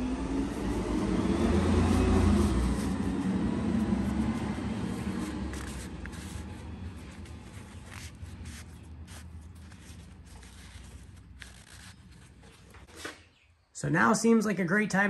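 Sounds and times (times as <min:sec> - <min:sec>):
vehicle engine passing: 0:00.0 - 0:12.9.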